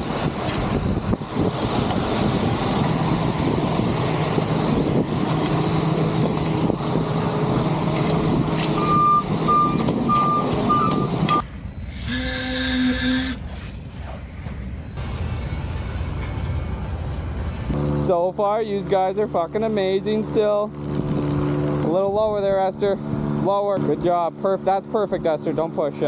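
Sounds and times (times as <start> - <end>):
diesel truck engine droning: 0.0 - 26.0
reversing alarm beeping: 8.8 - 13.5
held tone: 8.8 - 13.7.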